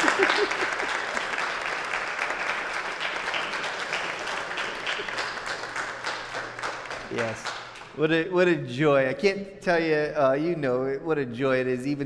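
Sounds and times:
congregation applauding: 0:00.0 - 0:08.0.

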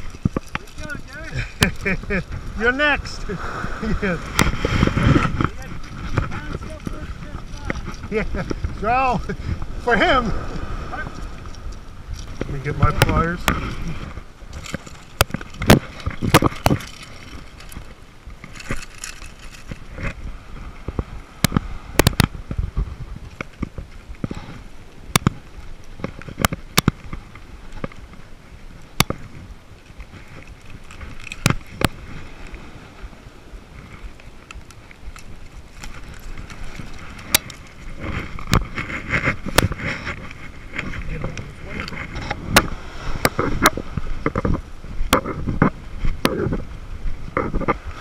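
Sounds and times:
sleeve brushing microphone: 0:00.0 - 0:17.6, 0:34.8 - 0:47.8
sharp clicks and knocks: 0:26.0 - 0:28.0.

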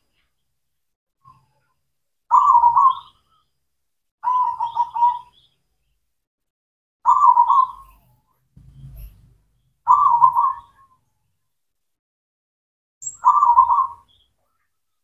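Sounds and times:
dove cooing: 0:02.3 - 0:03.1, 0:04.2 - 0:05.4, 0:07.1 - 0:08.0, 0:09.9 - 0:10.9, 0:13.2 - 0:14.2.

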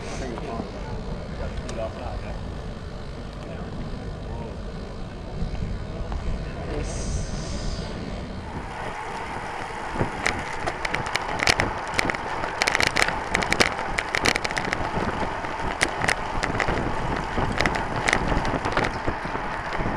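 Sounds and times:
road rumble: 0:00.0 - 0:19.9
wind noise: 0:00.0 - 0:19.9
sharp rattling clicks: 0:08.6 - 0:19.9.

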